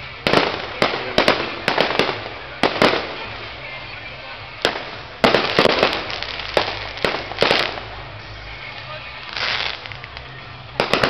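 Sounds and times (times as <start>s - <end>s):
fireworks bangs with crackling: 0.0s - 11.0s.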